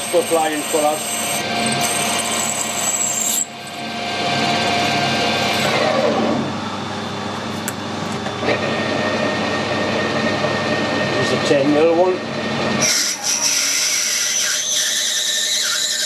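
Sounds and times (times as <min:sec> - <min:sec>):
metal lathe drilling brass: 0:00.0 - 0:06.1
steady high whine: 0:00.0 - 0:12.8.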